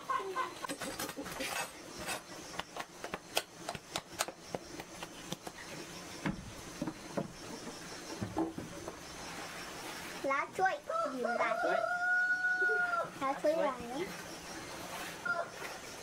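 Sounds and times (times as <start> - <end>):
scraping and light knocking: 0.6 - 5.6.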